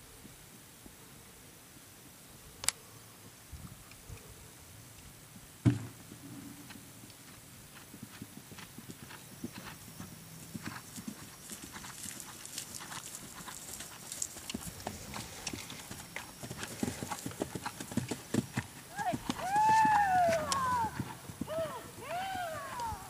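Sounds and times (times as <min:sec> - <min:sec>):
horse hoofbeats on turf: 0:06.6 - 0:22.8.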